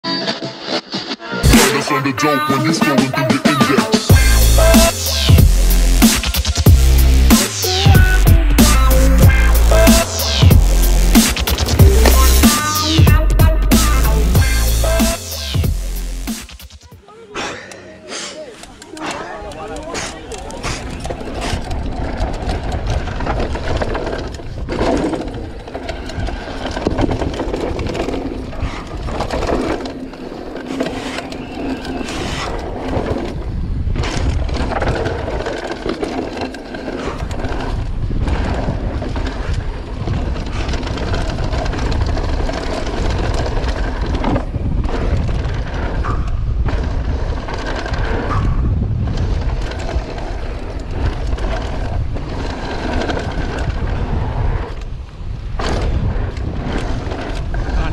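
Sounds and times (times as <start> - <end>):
tyres crunching on loose dirt: 17.7 - 57.9
bike rattling and knocking: 18.8 - 57.9
wind rumble on microphone: 31.9 - 36.4, 37.0 - 57.9.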